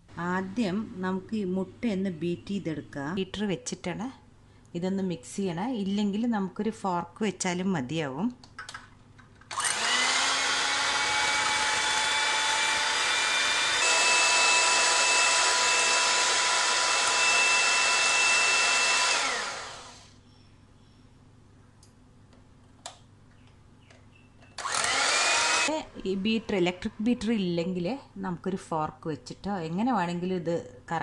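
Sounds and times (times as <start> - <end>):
electric hand mixer whirring: 9.5 - 20.2, 24.6 - 25.8.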